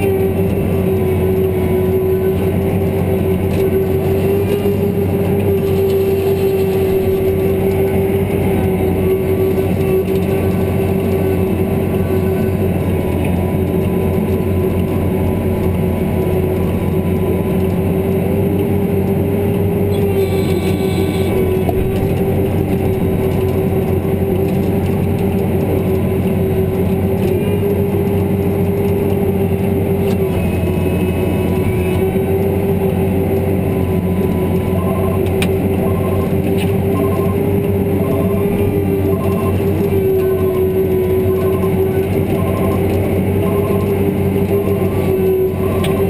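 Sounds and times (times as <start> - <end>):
tractor engine droning: 0.0 - 46.0
steady whine: 19.0 - 46.0
faint short beeps: 36.9 - 37.4, 39.1 - 39.6, 41.4 - 42.8.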